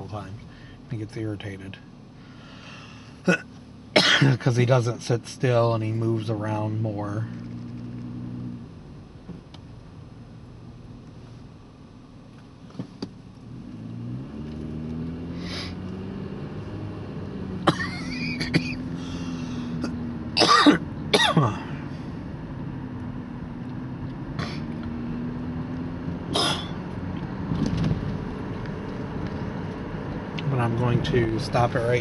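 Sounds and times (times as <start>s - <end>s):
car engine from inside cabin: 0.0s - 32.0s
person coughing: 4.0s - 4.4s, 17.7s - 18.8s, 20.4s - 21.7s, 26.3s - 26.8s.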